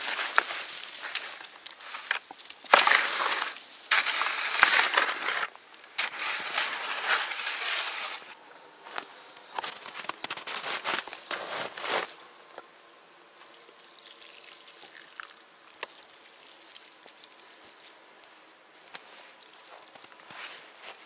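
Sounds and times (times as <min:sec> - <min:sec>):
snow shovel scraping: 0:00.0 - 0:08.4, 0:09.6 - 0:12.2
footsteps in snow: 0:00.0 - 0:12.2, 0:18.8 - 0:21.0.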